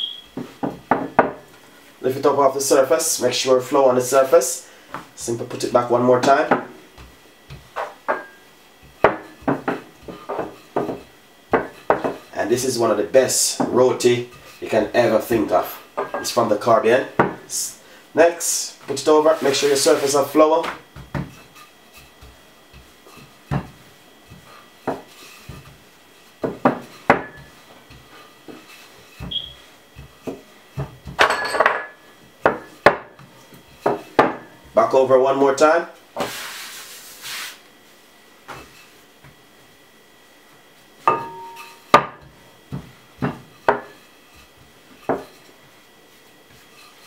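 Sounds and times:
rolling pin knocking on counter: 0:00.4 - 0:01.4, 0:17.2 - 0:17.4
rolling pin knocking on countertop: 0:00.4 - 0:01.4, 0:08.9 - 0:12.2, 0:17.2 - 0:17.4, 0:26.4 - 0:28.0, 0:41.1 - 0:44.0
rolling pin rubbing dough: 0:03.7 - 0:16.5, 0:18.8 - 0:31.2, 0:36.2 - 0:39.3, 0:41.6 - 0:47.0.

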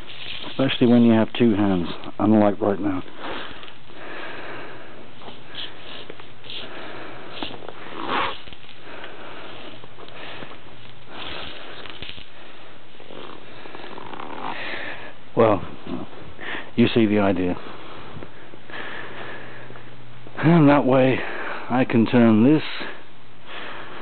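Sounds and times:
insulation pulled off wire: 0:00.0 - 0:02.2, 0:10.8 - 0:12.4.

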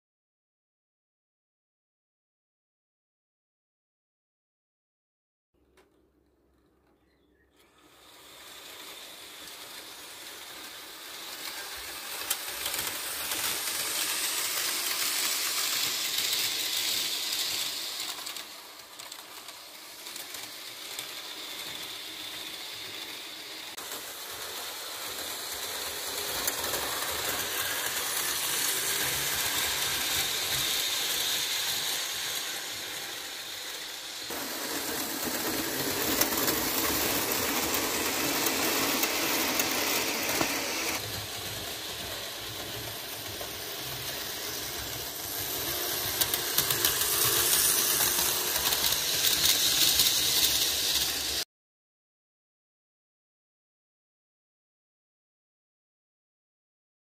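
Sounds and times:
model train motor whirring: 0:07.6 - 0:51.4
wheels clicking on rails: 0:07.6 - 0:51.4.

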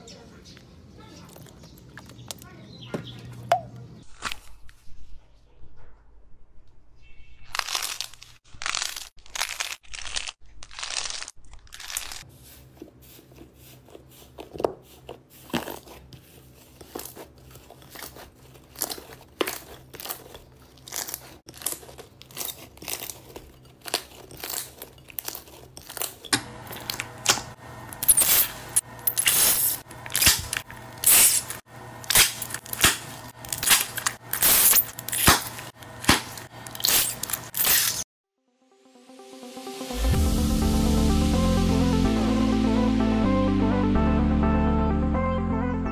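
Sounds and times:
slime crackling and popping: 0:17.9 - 0:26.2.

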